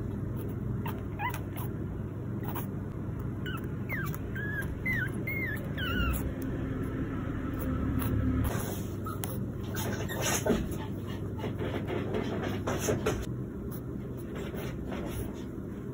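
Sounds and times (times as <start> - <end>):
puppy whimpering: 0.3 - 1.8, 2.4 - 6.6, 7.5 - 10.8.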